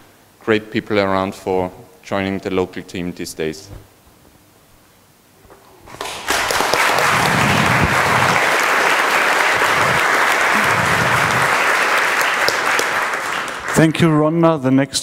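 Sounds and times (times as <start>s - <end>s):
large audience applauding: 5.9s - 14.0s.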